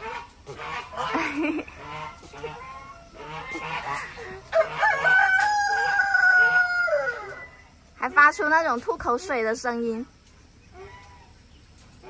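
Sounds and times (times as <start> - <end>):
rooster crowing: 4.4 - 7.8.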